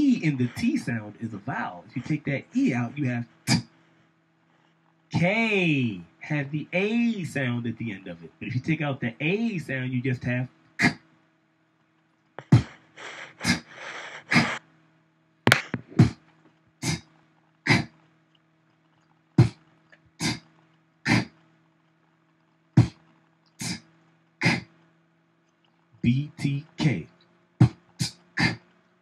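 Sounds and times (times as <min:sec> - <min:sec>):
beatbox mouth sounds: 0:00.0 - 0:02.8, 0:03.4 - 0:03.7, 0:10.8 - 0:11.0, 0:12.4 - 0:14.6, 0:15.5 - 0:16.2, 0:16.8 - 0:17.0, 0:17.7 - 0:18.0, 0:19.4 - 0:19.6, 0:20.2 - 0:20.5, 0:21.1 - 0:21.3, 0:22.8 - 0:23.0, 0:23.6 - 0:24.7, 0:26.0 - 0:28.6.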